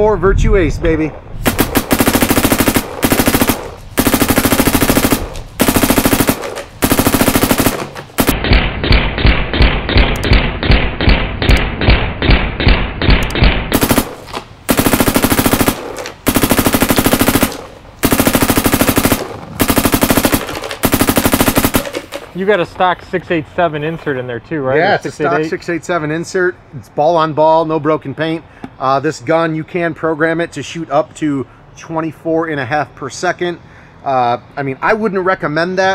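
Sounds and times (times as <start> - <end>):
paintball marker firing bursts: 1.4 - 22.4.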